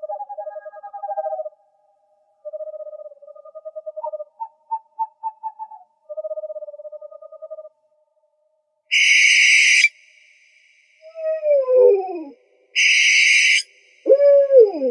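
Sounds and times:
owl hooting in rapid trills: 0:00.0 - 0:01.5, 0:02.4 - 0:07.7, 0:08.9 - 0:10.0, 0:11.0 - 0:14.9
higher owl trill: 0:08.9 - 0:10.0, 0:11.0 - 0:14.9.

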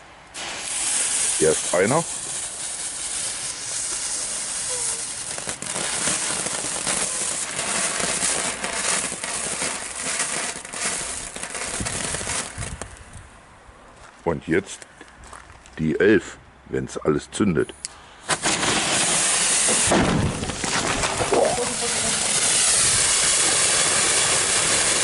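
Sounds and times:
firework fountain hissing: 0:00.0 - 0:12.9, 0:18.2 - 0:25.0
firework crackling: 0:00.0 - 0:13.1, 0:18.2 - 0:25.0.

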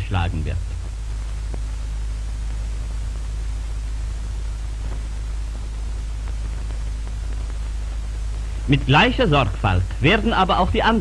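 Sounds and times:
faint crackles: 0:00.0 - 0:11.0
film soundtrack hiss and hum: 0:00.0 - 0:11.0.

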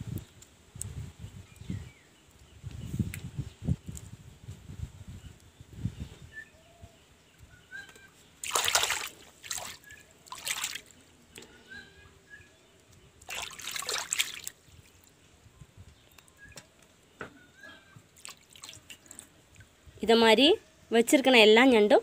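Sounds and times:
water splashing in a basin: 0:08.4 - 0:11.0, 0:13.2 - 0:15.0, 0:18.2 - 0:19.7.

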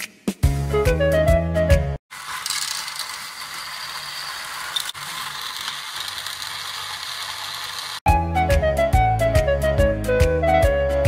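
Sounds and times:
toy motor and gears whirring: 0:02.1 - 0:08.0.

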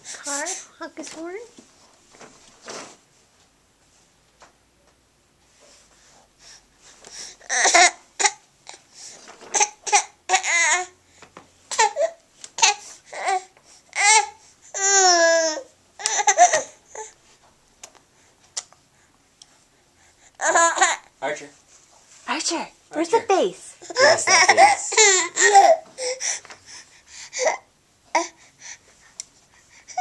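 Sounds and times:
baby babbling and laughing: 0:11.7 - 0:17.1, 0:20.4 - 0:21.1, 0:23.8 - 0:26.2.

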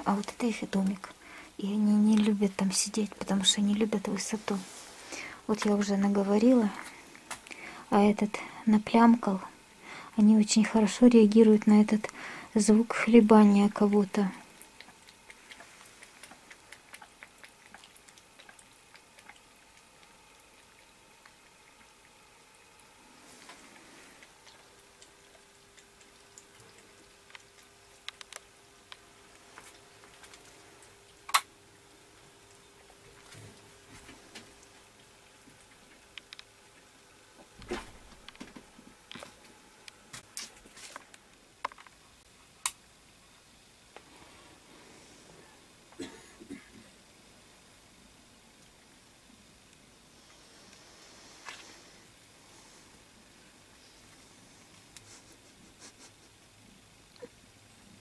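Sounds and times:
soft rustles: 0:04.2 - 0:06.0
cats lapping milk: 0:12.0 - 0:37.0
small clicks: 0:27.3 - 0:29.0.

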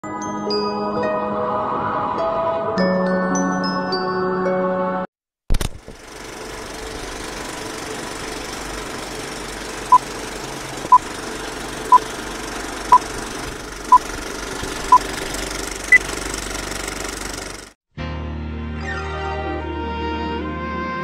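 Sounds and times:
film projector clatter: 0:05.5 - 0:17.8.

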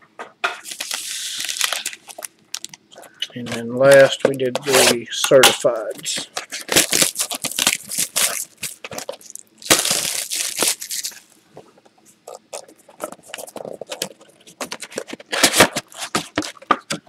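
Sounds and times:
plastic shrink-wrap crinkling: 0:00.6 - 0:05.0, 0:05.8 - 0:11.4.

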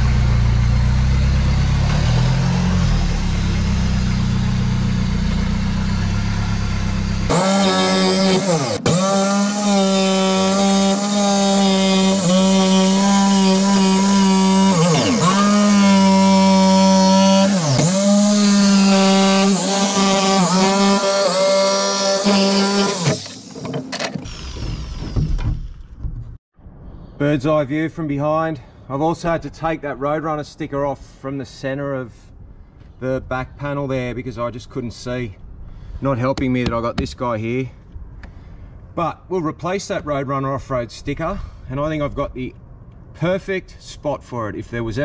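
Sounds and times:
jigsaw cutting sheet metal: 0:07.3 - 0:25.2
low rumble: 0:25.9 - 0:30.5.

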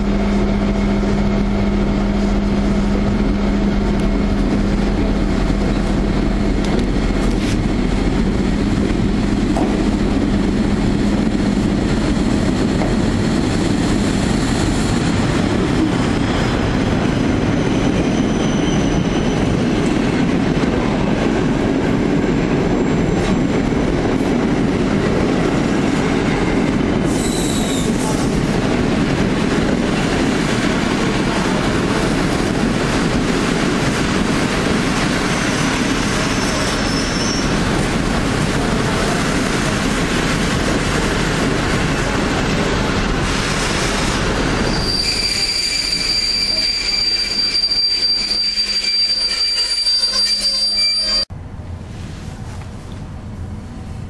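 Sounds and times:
train wheels rumbling on rails: 0:00.0 - 0:54.0
wheel squeals: 0:17.6 - 0:19.6, 0:27.1 - 0:28.2, 0:35.3 - 0:37.6, 0:44.6 - 0:51.3.

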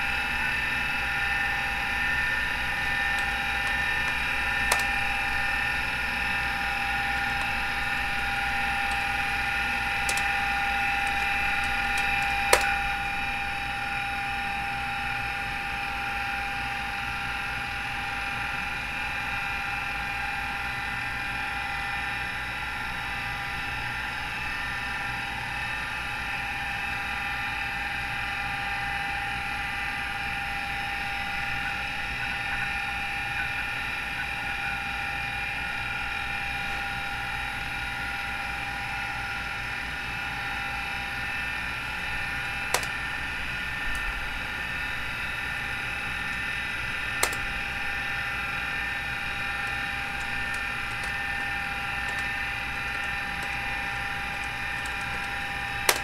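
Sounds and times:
hard drive spinning whine: 0:00.0 - 0:56.0
sharp clicks: 0:03.1 - 0:05.9, 0:06.9 - 0:13.2, 0:42.7 - 0:43.0, 0:47.2 - 0:47.6, 0:49.6 - 0:56.0.

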